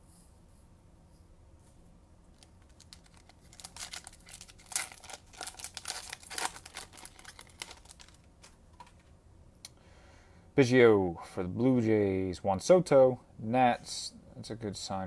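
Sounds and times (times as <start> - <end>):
wrapper crinkling and tearing: 2.3 - 9.0.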